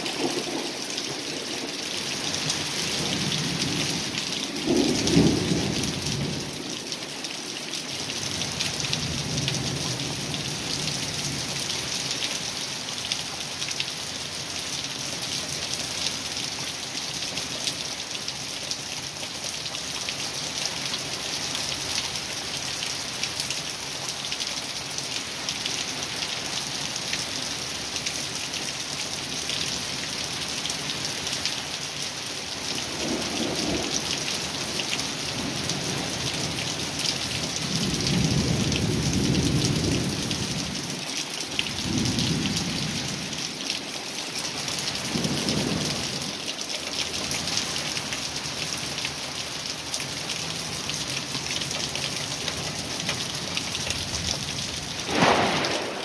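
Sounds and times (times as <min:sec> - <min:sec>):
heavy rain falling: 0:00.0 - 0:56.0
thunder rumbling: 0:55.0 - 0:56.0.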